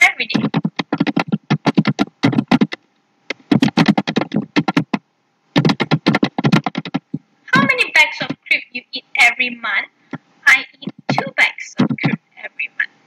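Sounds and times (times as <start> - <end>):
computer keyboard typing: 0.3 - 5.0, 5.6 - 7.2.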